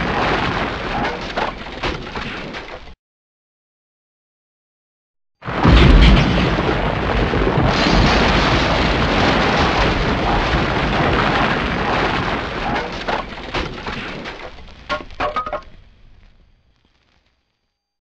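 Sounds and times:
explosion: 0.0s - 2.6s, 5.4s - 16.3s
sharp cracks: 5.5s - 17.0s.

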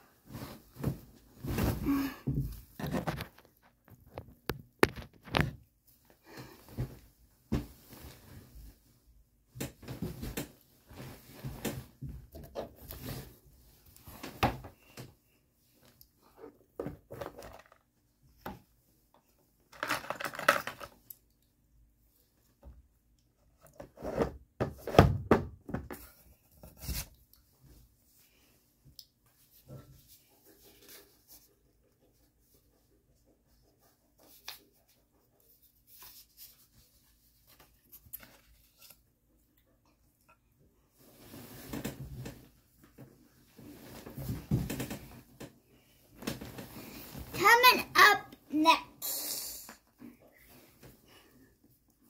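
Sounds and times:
bedding rustling: 0.0s - 3.7s, 6.5s - 9.1s, 9.8s - 15.0s, 40.9s - 47.7s
knocks and thumps of handling: 9.5s - 12.8s, 41.6s - 45.6s.

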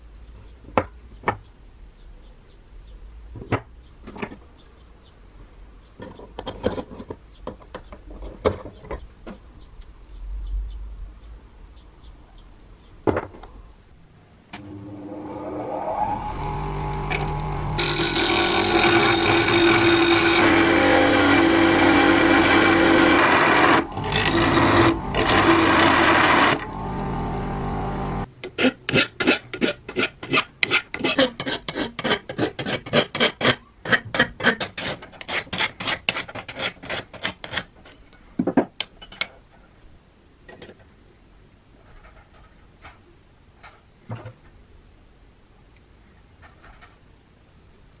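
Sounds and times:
bench grinder grinding steel: 14.6s - 28.3s
grinder motor hum: 14.6s - 28.3s.

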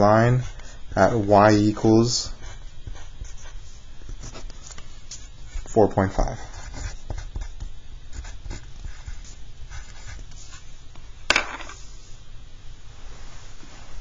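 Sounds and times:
pencil scratching on paper: 0.0s - 10.7s.

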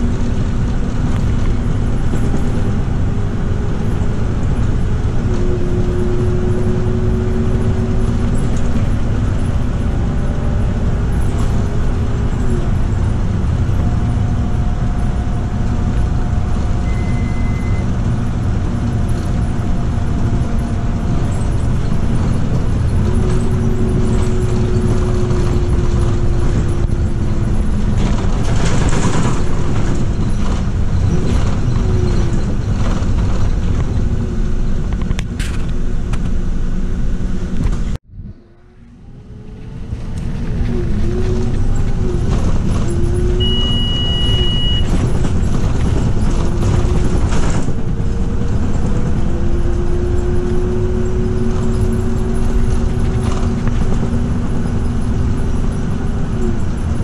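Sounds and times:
bus diesel engine running: 0.0s - 57.0s
road and tyre noise: 0.0s - 57.0s
gearbox whine changing pitch: 1.7s - 28.4s, 38.1s - 57.0s
short beep: 16.8s - 17.9s, 43.4s - 45.0s.

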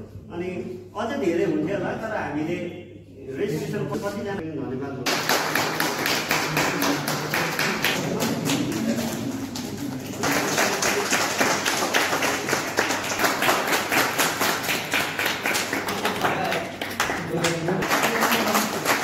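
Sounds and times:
people clapping: 5.0s - 19.0s.

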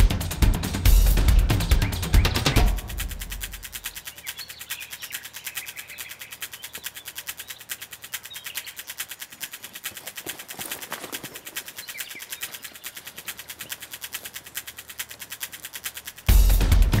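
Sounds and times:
fast ticking pulse: 0.0s - 17.0s
faint bird chirps: 3.7s - 9.2s, 11.6s - 13.2s.

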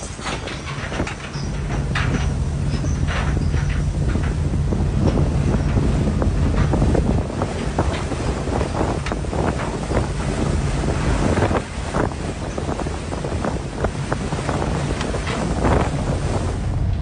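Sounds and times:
deep steady rumble: 0.0s - 17.0s
waves breaking: 0.0s - 17.0s
wind buffeting microphone: 0.0s - 17.0s.

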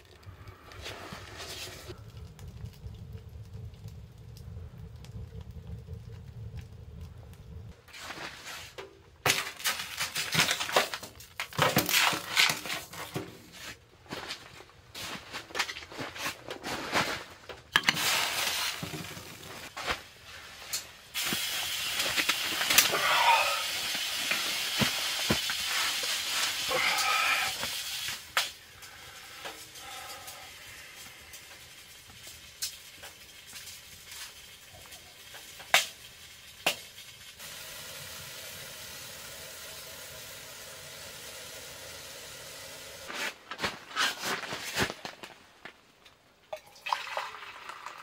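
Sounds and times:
pot scraping on stove top: 0.8s - 2.0s.

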